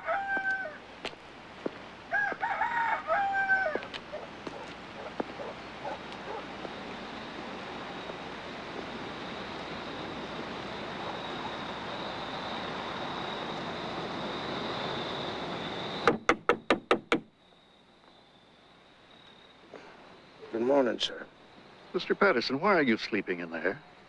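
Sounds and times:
background hiss: 0.0 - 24.0
knocks on a car: 16.1 - 17.3.

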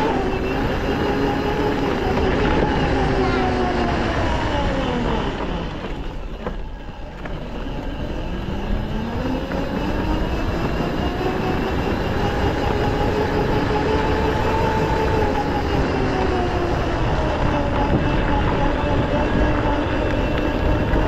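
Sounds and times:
constant low rumble: 0.0 - 21.0
quad bike engine revving: 7.8 - 21.0.

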